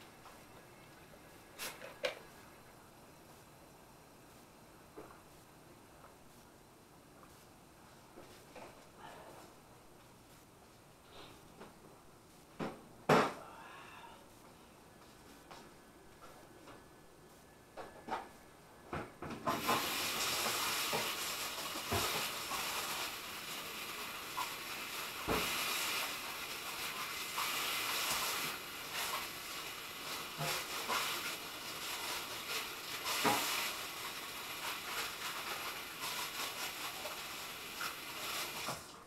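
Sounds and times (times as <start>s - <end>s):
food sizzling in oil: 19.5s - 38.9s
oil popping and crackling: 19.5s - 39.0s.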